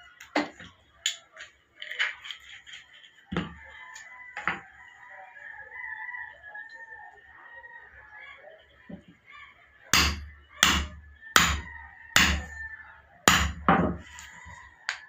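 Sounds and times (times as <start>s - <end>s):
hammer striking steel tool: 10.0s - 12.5s, 13.3s - 13.7s.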